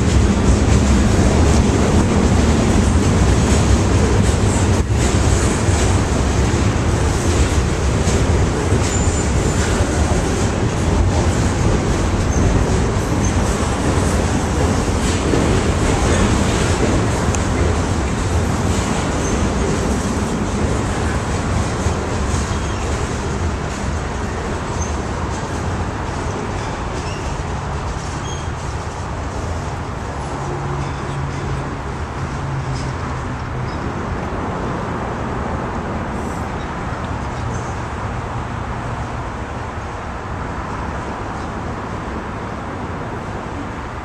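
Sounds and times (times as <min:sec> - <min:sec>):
freight train wheels rumbling: 0:00.0 - 0:44.0
wheels squealing: 0:07.1 - 0:17.1, 0:22.2 - 0:23.2, 0:24.7 - 0:28.8.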